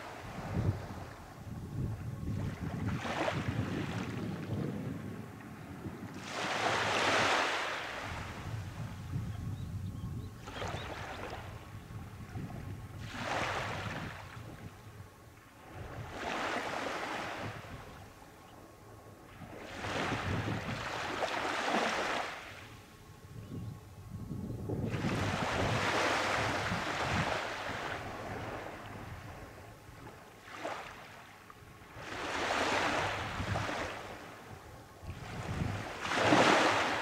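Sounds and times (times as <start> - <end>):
small waves breaking on sand: 2.3 - 4.6, 6.1 - 8.8, 13.0 - 14.6, 15.5 - 17.8, 19.3 - 22.8, 24.9 - 37.0.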